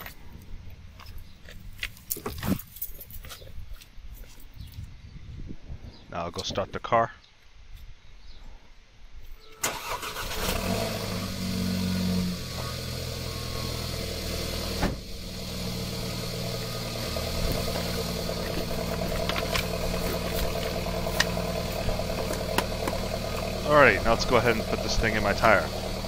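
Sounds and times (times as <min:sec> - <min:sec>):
car engine starting and idling: 0:09.6 - 0:26.0
thump: 0:14.8 - 0:15.1.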